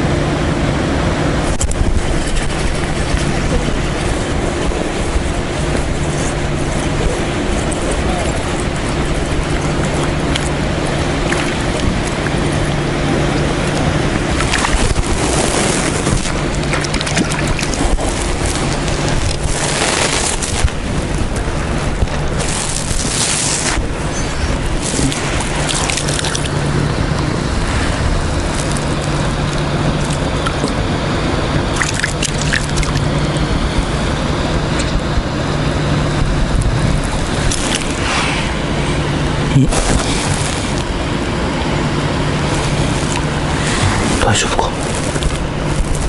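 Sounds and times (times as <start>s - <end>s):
steady low hum: 0.0s - 46.0s
fish splashing at surface: 1.5s - 26.7s, 31.7s - 33.4s.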